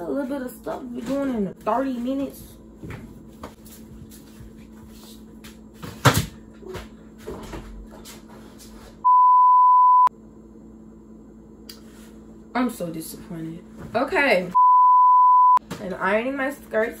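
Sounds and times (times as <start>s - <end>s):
censor bleep: 9.0s - 10.1s, 14.6s - 15.6s.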